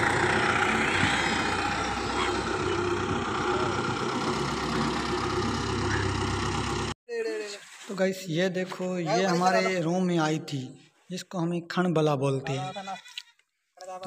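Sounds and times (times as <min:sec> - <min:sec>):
tractor diesel engine running: 0:00.0 - 0:07.0.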